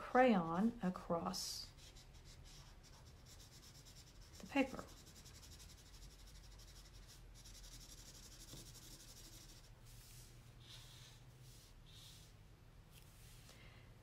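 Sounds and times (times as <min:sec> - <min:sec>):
felt-tip marker scratching on paper: 0:01.6 - 0:12.3.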